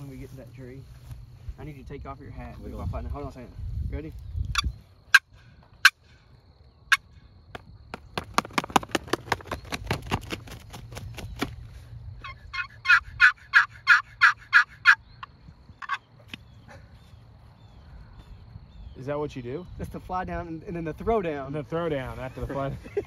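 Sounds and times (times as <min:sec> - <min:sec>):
hat beating like wingbeats: 0:07.5 - 0:11.6
turkey call clucks and yelps: 0:12.2 - 0:16.8.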